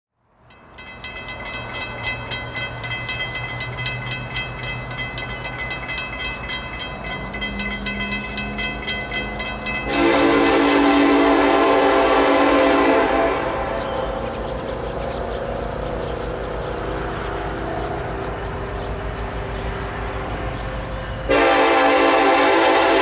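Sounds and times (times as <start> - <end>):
low train rumble: 0.2 - 23.0
rapid ringing: 0.5 - 12.8
train horn chord: 9.8 - 14.4, 21.2 - 23.0.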